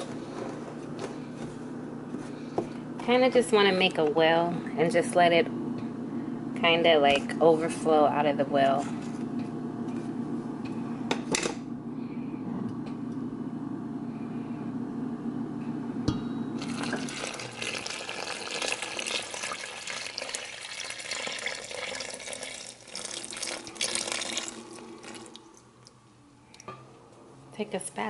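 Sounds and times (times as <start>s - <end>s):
low steady hum: 0.0s - 28.0s
water pouring into a bowl: 16.6s - 25.6s.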